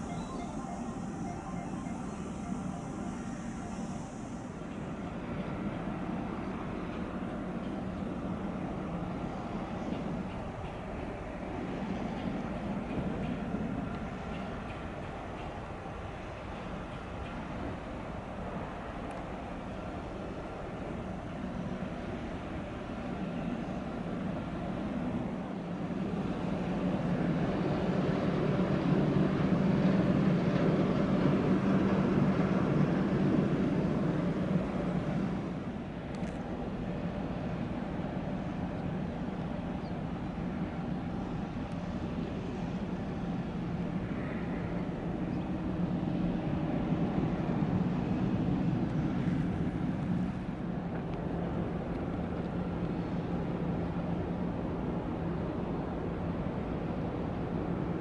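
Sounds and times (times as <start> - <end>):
broad rushing noise: 0.0 - 6.9
ship engine drone: 0.0 - 58.0.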